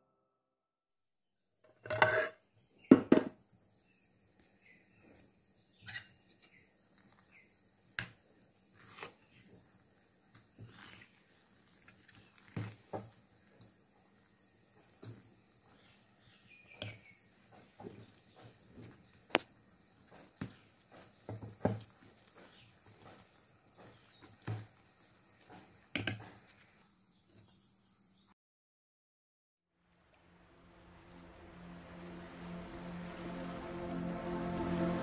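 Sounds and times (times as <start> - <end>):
spoon scraping vessel: 1.8 - 2.4
crickets chirping: 2.1 - 28.3, 30.3 - 35.0.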